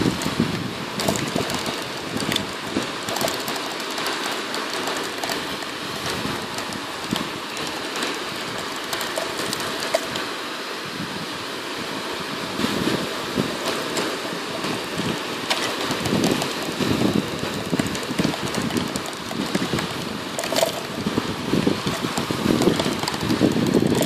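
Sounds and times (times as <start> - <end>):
steady rushing noise: 0.0 - 24.0
plastic cup crackling: 15.4 - 24.0.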